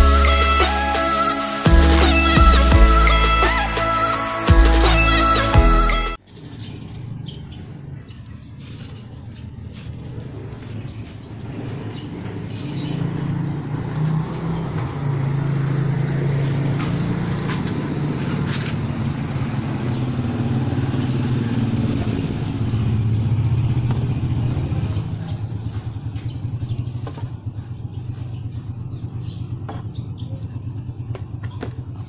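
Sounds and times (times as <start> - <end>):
vehicle engine running: 8.6 - 32.0.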